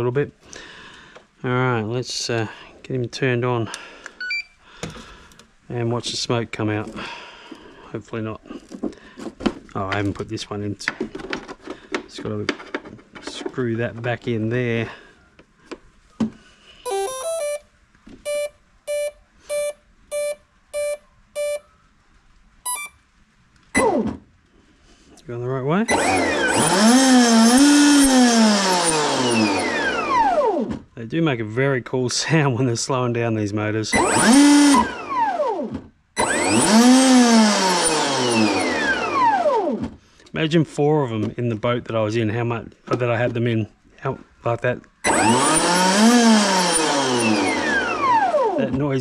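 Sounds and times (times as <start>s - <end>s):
motor controller beeps: 4.2s - 4.6s, 18.3s - 21.6s, 22.7s - 23.0s
electric motor whine: 25.9s - 30.7s, 34.0s - 39.8s, 45.1s - 48.8s.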